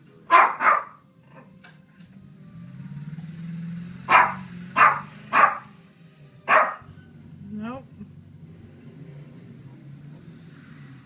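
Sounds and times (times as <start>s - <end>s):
dog barking: 0.3s - 1.5s, 4.1s - 5.8s, 6.5s - 6.9s.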